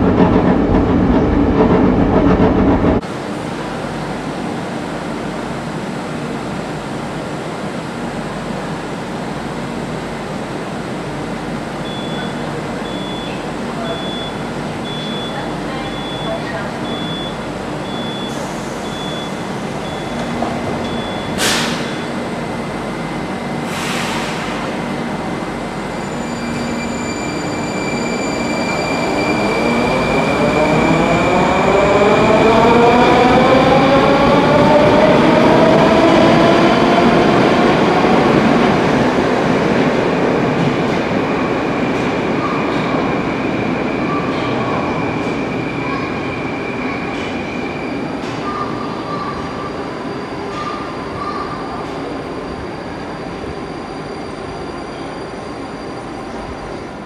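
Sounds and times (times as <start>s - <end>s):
wheels rumbling on rail: 0.0s - 3.9s
metro train traction whine: 0.0s - 57.0s.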